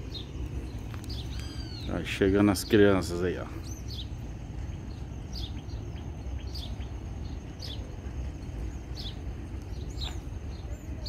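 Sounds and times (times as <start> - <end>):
bird chirping: 0.0 - 11.0
steady low rumble: 0.0 - 11.0.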